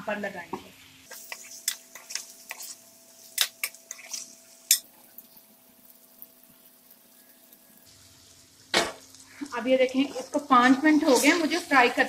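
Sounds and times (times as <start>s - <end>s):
metal spoon scraping a pot: 1.1s - 4.9s.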